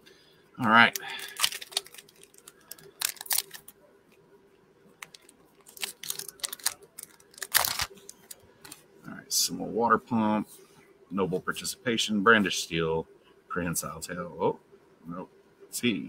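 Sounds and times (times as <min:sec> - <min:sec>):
foil pack crinkling and tearing: 0:00.8 - 0:03.7, 0:05.0 - 0:08.8.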